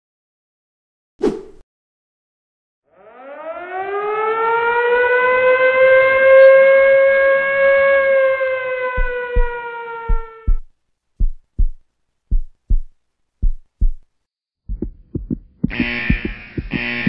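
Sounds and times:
siren wailing: 0:02.9 - 0:10.6.

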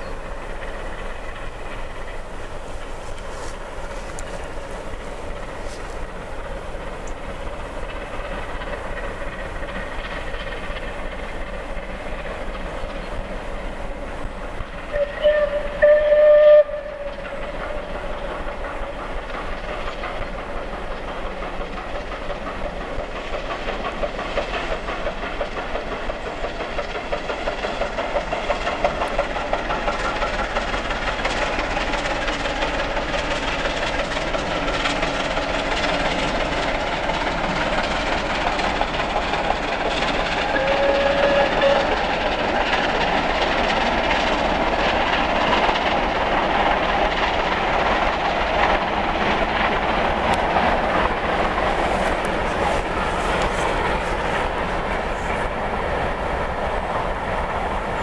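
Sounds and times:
steam locomotive exhaust beating: 0:00.0 - 0:58.0
steam locomotive whistle: 0:14.9 - 0:17.8, 0:40.4 - 0:42.2.

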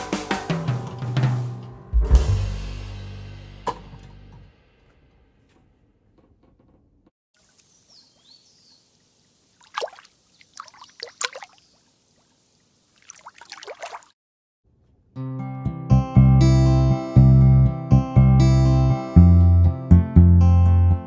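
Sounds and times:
music: 0:00.0 - 0:04.8, 0:15.2 - 0:21.0
faint hiss: 0:07.4 - 0:10.5, 0:11.6 - 0:13.0
liquid pouring and splashing: 0:09.5 - 0:11.6, 0:13.0 - 0:14.2.

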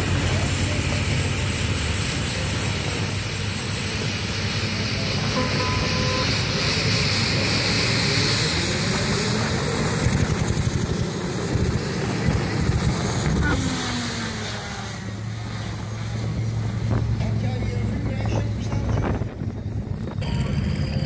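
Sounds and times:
tractor engine running under load: 0:15.4 - 0:21.0.

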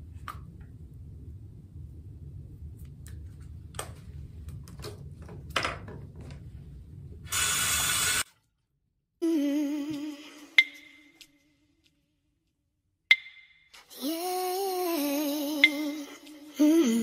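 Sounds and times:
low steady rumble: 0:00.0 - 0:07.3
loud hiss: 0:07.3 - 0:08.2.

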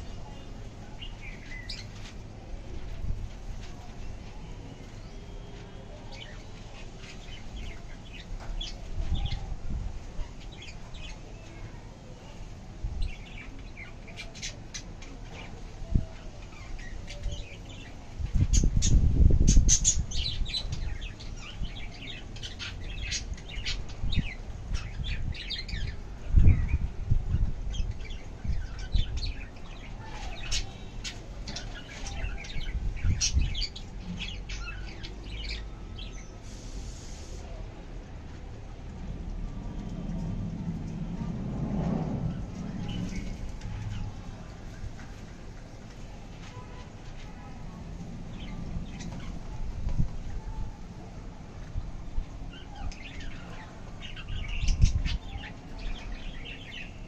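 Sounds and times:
low rumble: 0:38.7 - 0:45.2.

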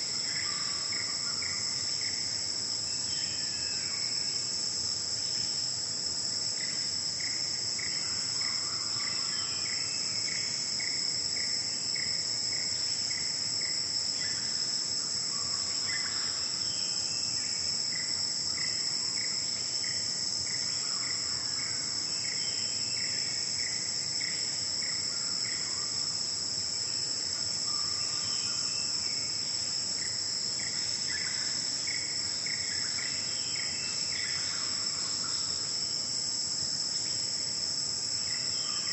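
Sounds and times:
forest insects chorus: 0:00.0 - 0:38.9.

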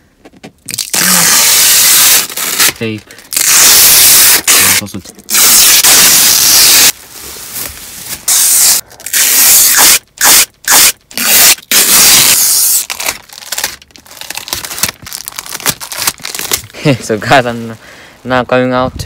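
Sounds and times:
tape ripping off: 0:00.6 - 0:07.0, 0:08.1 - 0:16.8
plastic crackling: 0:12.3 - 0:17.4.

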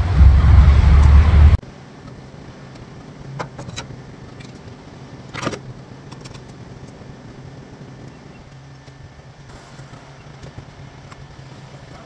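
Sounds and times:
wind noise: 0:00.0 - 0:01.6
steady low hum: 0:00.0 - 0:12.0.

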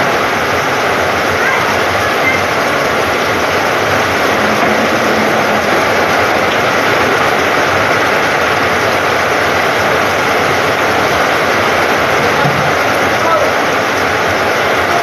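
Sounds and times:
heavy rain on a metal roof: 0:00.0 - 0:15.0.

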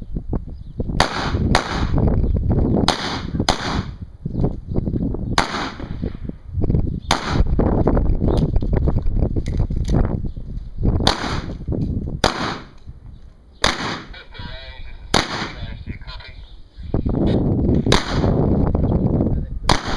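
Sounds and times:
pistol shots: 0:01.0 - 0:02.0, 0:02.9 - 0:03.9, 0:05.4 - 0:06.0, 0:07.1 - 0:07.5, 0:11.0 - 0:11.6, 0:12.2 - 0:12.8, 0:13.6 - 0:14.2, 0:15.1 - 0:15.6, 0:17.9 - 0:18.4, 0:19.7 - 0:19.9.

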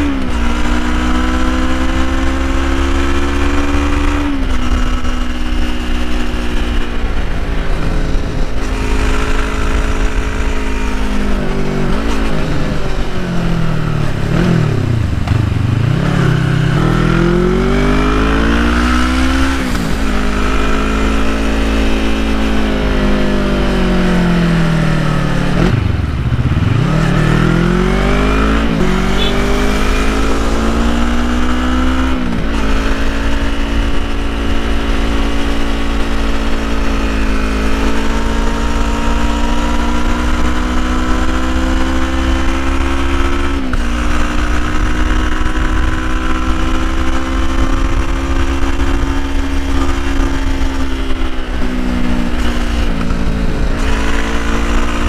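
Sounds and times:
motorcycle engine with gear upshifts: 0:00.0 - 0:55.0.

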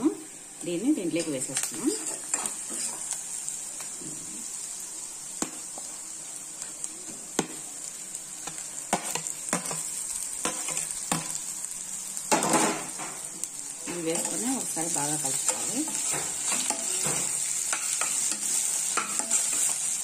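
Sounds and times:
onions sizzling in oil: 0:00.0 - 0:20.0
potatoes scraped into pan: 0:01.6 - 0:04.6.

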